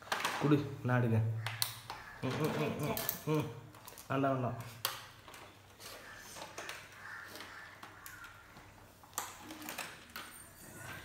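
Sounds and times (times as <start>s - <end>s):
packaging rustling: 1.9s - 10.6s.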